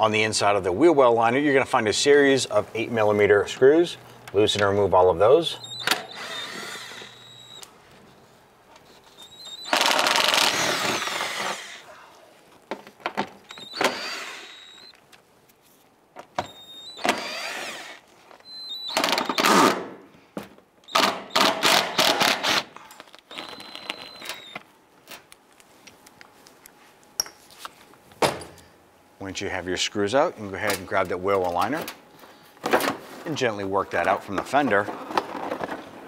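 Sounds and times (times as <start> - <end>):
cordless power tool motor whine: 5.6 - 7.7, 9.2 - 11.8, 13.5 - 14.9, 16.4 - 19.7, 23.3 - 24.6.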